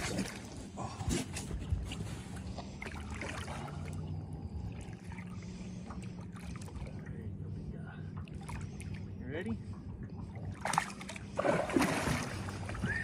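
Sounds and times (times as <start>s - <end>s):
water trickling and sloshing: 0.0s - 7.3s, 8.0s - 13.0s
steady low hum: 0.0s - 13.0s
small splashes: 10.6s - 13.0s.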